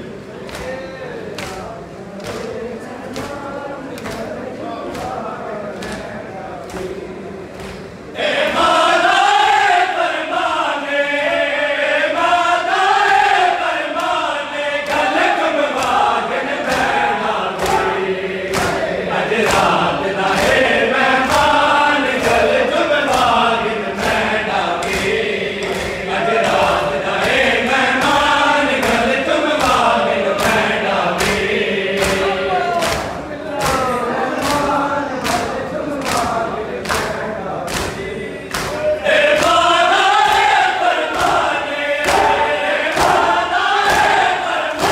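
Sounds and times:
men chanting in unison: 0:00.0 - 0:44.9.

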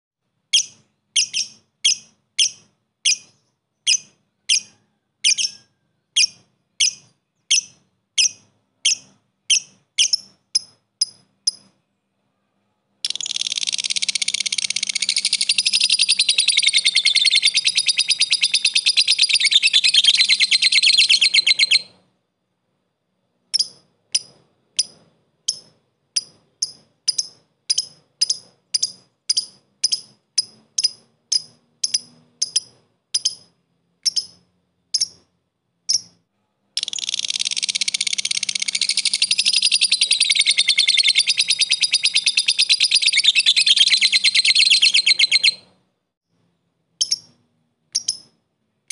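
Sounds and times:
lovebird chattering trill: 0:00.5 - 0:11.8, 0:13.0 - 0:22.0, 0:23.5 - 0:35.3, 0:35.9 - 0:36.2, 0:36.8 - 0:45.7, 0:47.0 - 0:48.9
short bird tick notes: 0:23.5 - 0:35.3, 0:47.0 - 0:48.9.

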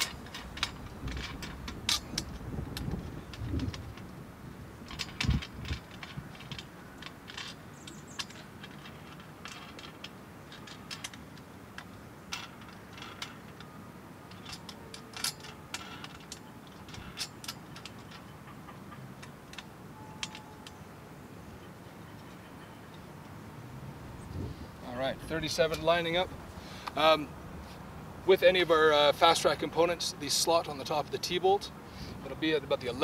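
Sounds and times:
small metallic clicks and taps: 0:14.3 - 0:20.8.

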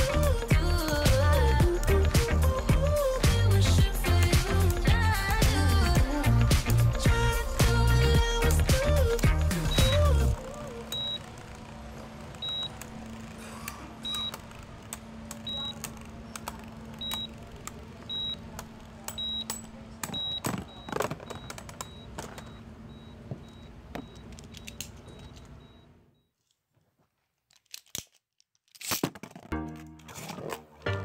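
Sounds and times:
music: 0:00.0 - 0:11.3, 0:29.5 - 0:31.0.

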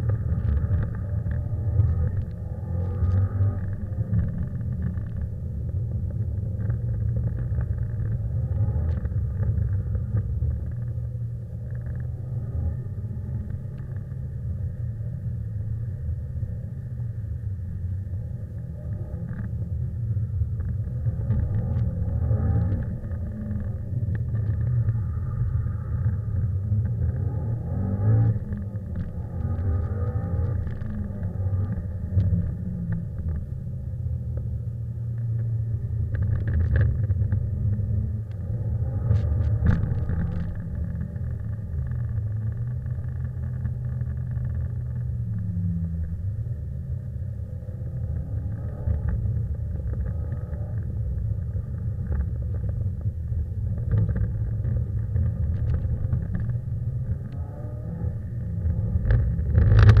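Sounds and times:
muffled car engine rumble: 0:00.0 - 1:00.0.

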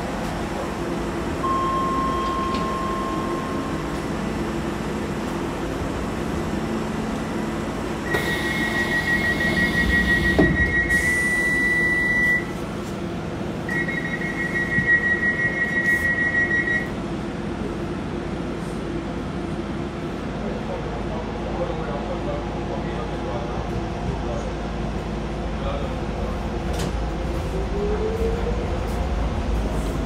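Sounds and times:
train equipment humming: 0:00.0 - 0:20.7
fast high-pitched door warning beeps: 0:08.1 - 0:12.5, 0:13.7 - 0:16.9.

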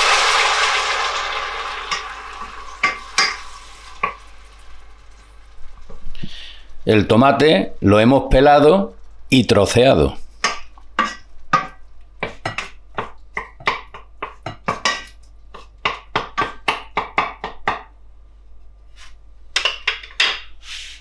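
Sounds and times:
wooden spoon knocking on pot: 0:10.4 - 0:18.0.

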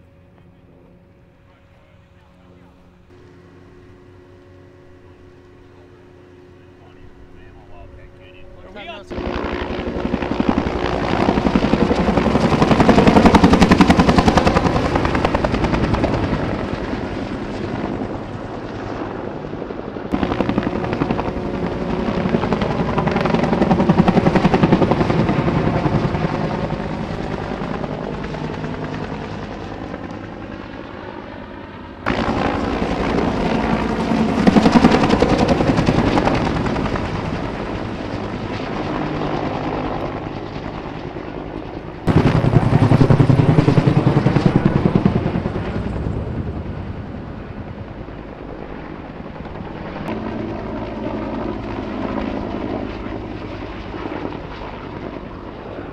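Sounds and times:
helicopter rotor blades beating: 0:00.0 - 0:55.9.

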